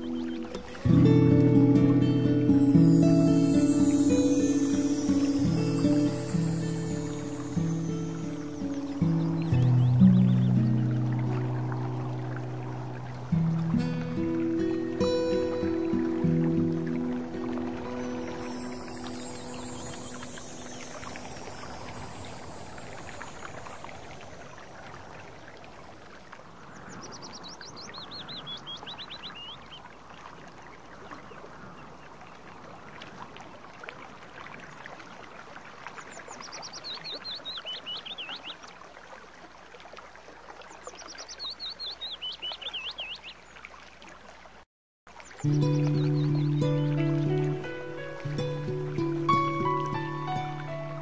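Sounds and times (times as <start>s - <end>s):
songbird singing: 0.0s - 25.7s, 26.6s - 29.9s, 36.0s - 38.7s, 40.6s - 43.7s, 45.2s - 51.0s
stream rushing over rocks: 0.0s - 27.9s, 43.4s - 51.0s.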